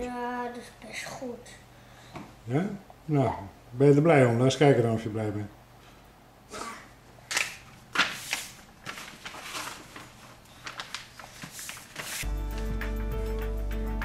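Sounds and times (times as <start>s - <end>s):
paper rustling and crinkling: 7.3s - 12.7s
music: 12.2s - 14.0s.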